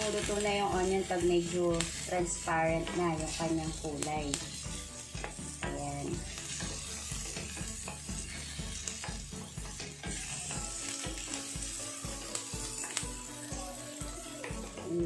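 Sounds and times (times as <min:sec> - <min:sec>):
onion sizzling in a frying pan: 0:00.0 - 0:15.0
spatula scraping and tapping pan: 0:02.8 - 0:11.6.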